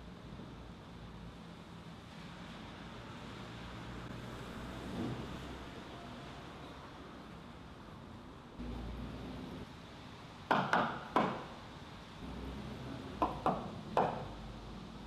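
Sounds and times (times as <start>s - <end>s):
knocks on a hard surface: 10.5s - 11.4s.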